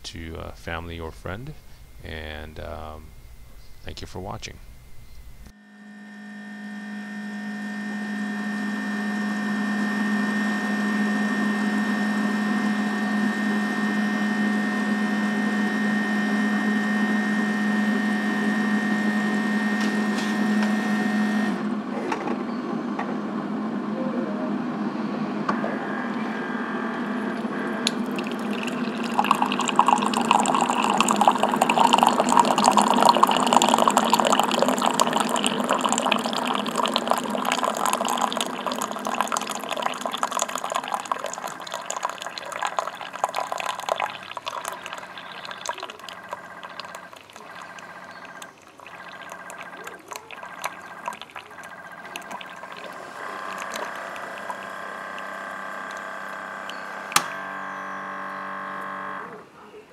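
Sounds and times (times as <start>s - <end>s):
coffee maker humming: 5.0s - 23.9s, 25.2s - 59.5s
coffee splashing into mug: 27.4s - 57.2s.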